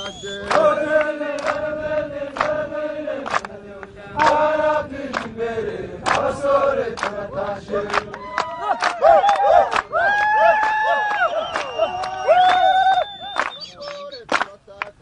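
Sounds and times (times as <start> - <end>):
men chanting in unison: 0.0 - 8.8.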